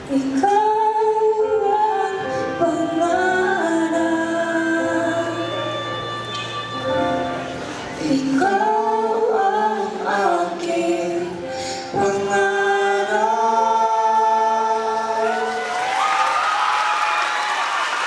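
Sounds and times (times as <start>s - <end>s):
person singing slow melody: 0.0s - 16.3s.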